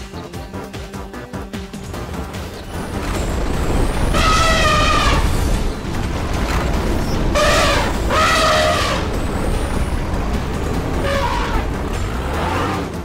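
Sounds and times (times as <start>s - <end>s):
heavy boulder rumbling: 2.7s - 12.8s.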